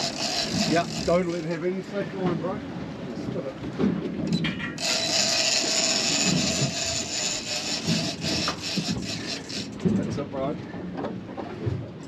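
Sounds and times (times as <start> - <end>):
fishing reel drag screaming: 0.0 - 1.6, 4.8 - 9.8.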